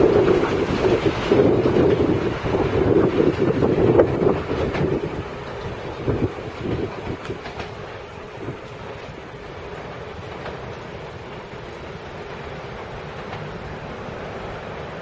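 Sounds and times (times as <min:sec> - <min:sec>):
train rolling rumble: 0:00.0 - 0:15.0
train wheels clacking on rail joints: 0:00.0 - 0:15.0.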